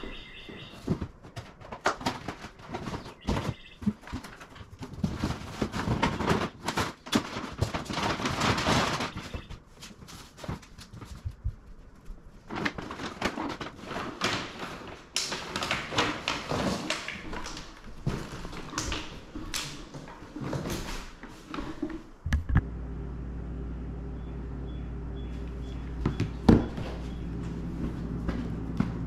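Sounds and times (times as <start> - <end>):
cardboard box and bags rustling: 0.0 - 22.2, 25.6 - 29.0
steady low hum: 22.2 - 29.0.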